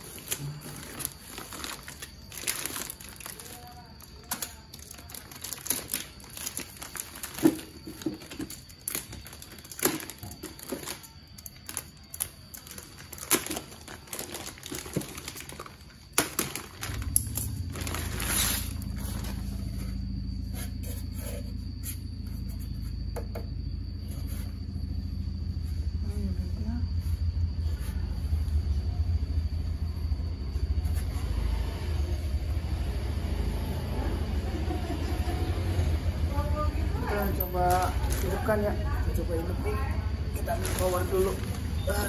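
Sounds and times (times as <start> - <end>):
plastic bag crinkling: 0.0 - 19.4, 37.5 - 38.5, 40.4 - 42.0
steady low hum: 0.0 - 42.0.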